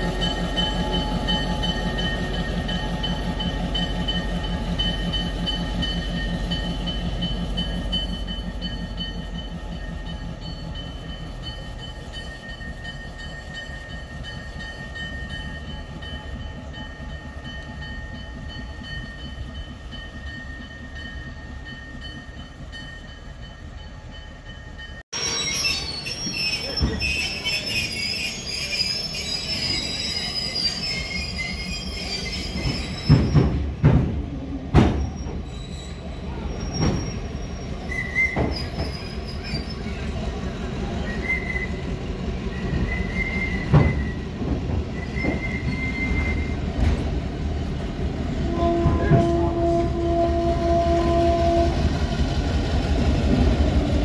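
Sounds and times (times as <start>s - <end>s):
diesel locomotive engine rumbling: 0.0s - 54.0s
train wheels squealing: 24.5s - 33.7s, 34.9s - 47.3s.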